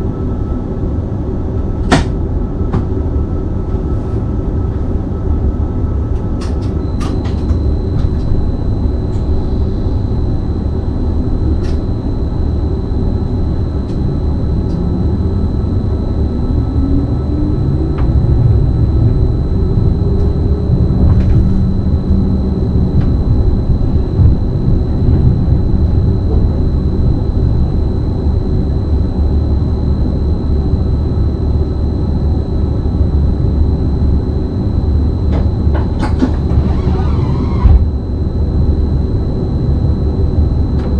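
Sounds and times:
electric train accelerating: 0:04.8 - 0:30.2.

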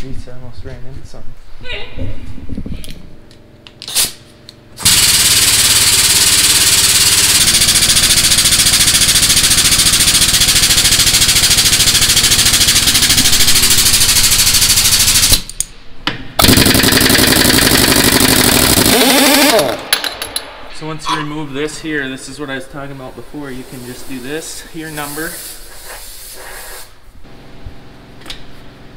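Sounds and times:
air impact wrench: 0:03.8 - 0:15.7, 0:16.4 - 0:20.6, 0:23.6 - 0:27.1
air tools hammering: 0:04.8 - 0:20.7.

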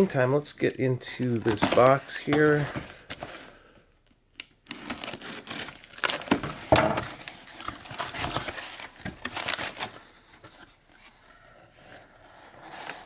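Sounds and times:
tape and cardboard tearing: 0:04.3 - 0:10.0.

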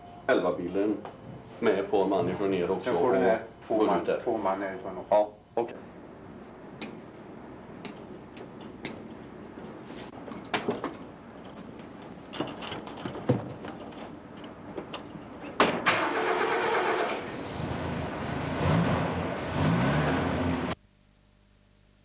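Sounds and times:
doors and gear clattering: 0:10.1 - 0:16.1
vehicle engine starting and running: 0:15.7 - 0:20.8.

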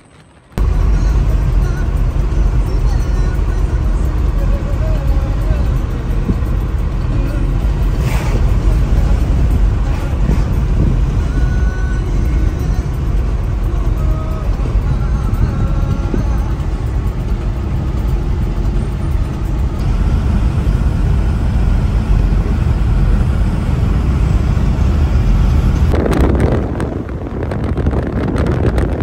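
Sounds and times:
car engine and tyre rumble: 0:00.0 - 0:29.0.

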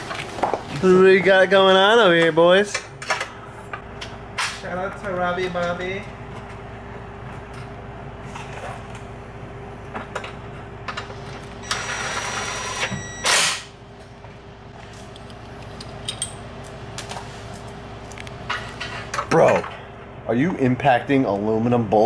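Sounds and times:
steady background hum: 0:00.0 - 0:22.0.

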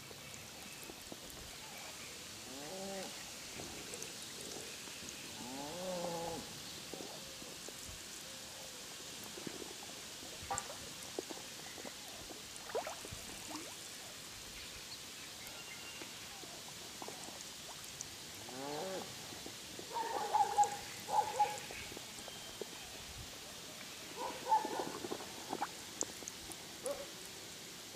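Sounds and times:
faint outdoor background: 0:00.0 - 0:27.9
animal calls: 0:24.2 - 0:25.1.

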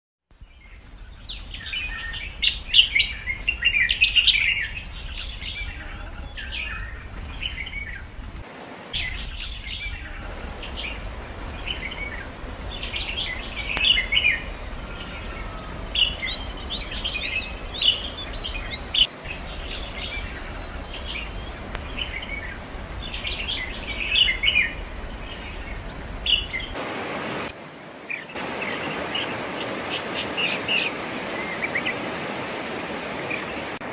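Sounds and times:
small birds chirping: 0:00.3 - 0:26.8
steady hiss: 0:00.7 - 0:33.9.

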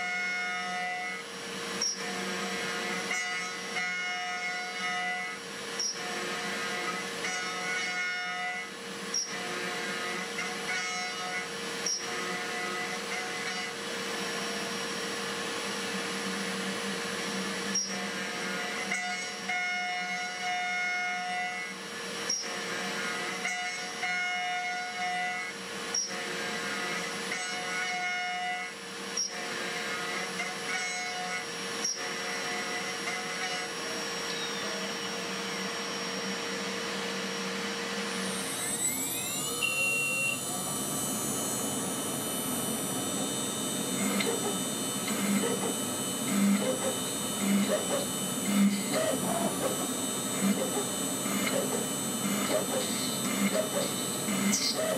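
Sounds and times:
milling spindle whirring: 0:00.0 - 0:54.9
spindle whine: 0:31.2 - 0:54.9.

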